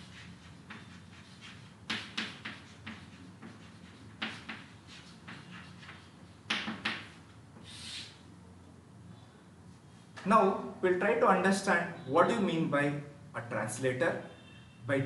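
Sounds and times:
chalk tapping and scraping on chalkboard: 0.0s - 8.2s.

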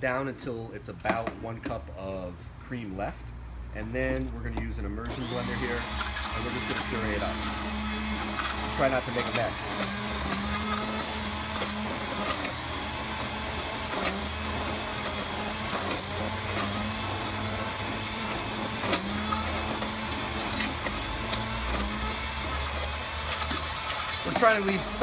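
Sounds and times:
immersion blender motor hum: 5.0s - 25.0s.

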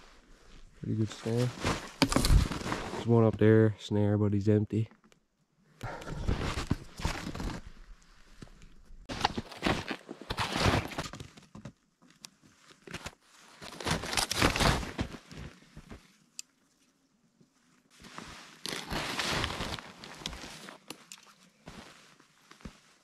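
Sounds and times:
snow crunching and rustling: 0.0s - 3.3s, 6.1s - 11.0s, 12.6s - 16.2s, 17.6s - 23.0s.

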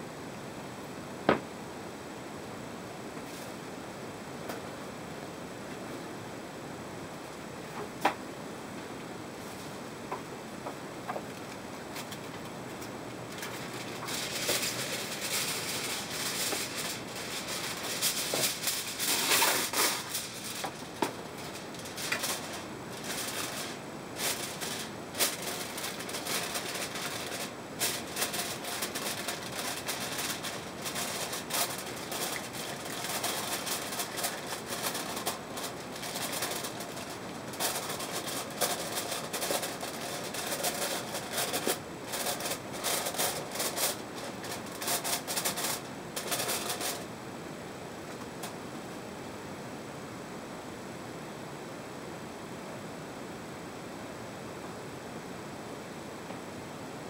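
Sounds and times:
aluminium foil crinkling: 11.3s - 47.1s.

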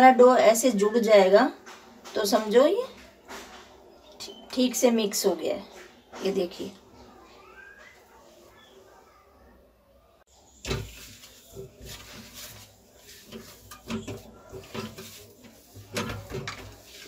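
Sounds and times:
steel plate shifting: 10.5s - 17.0s
dough thumping and scraping on steel: 10.6s - 17.0s.

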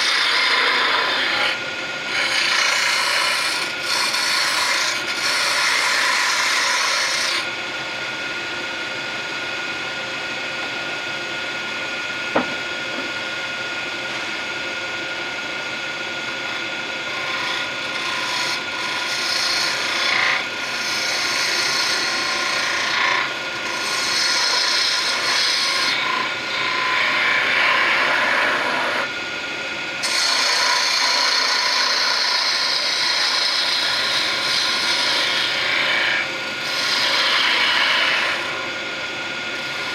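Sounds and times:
wood lathe tool scraping: 0.0s - 7.5s, 14.1s - 14.4s, 15.6s - 29.1s, 30.0s - 39.9s.

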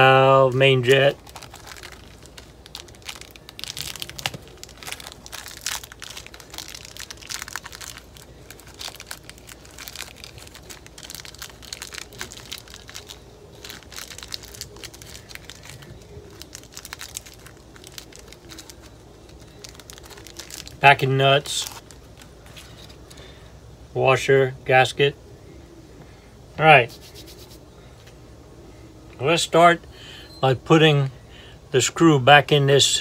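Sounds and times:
plastic bag crinkling: 0.0s - 23.2s.

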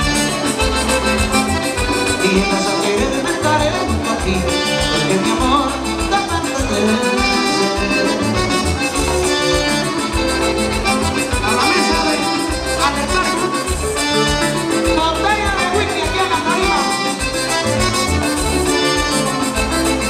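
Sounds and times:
accordion-led band playing: 0.0s - 20.0s.

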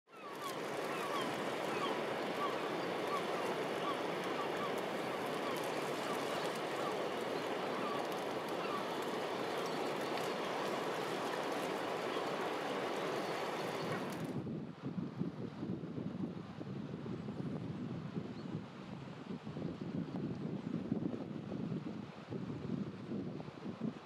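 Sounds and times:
waves lapping among rocks: 0.2s - 14.3s.

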